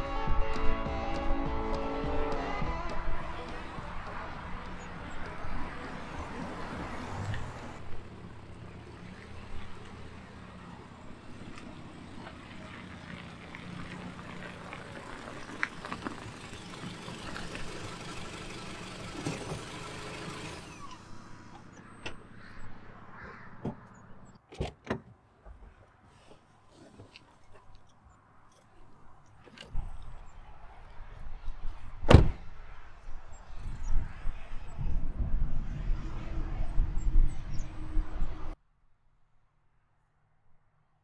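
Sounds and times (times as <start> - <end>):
car engine idling: 2.3 - 22.1.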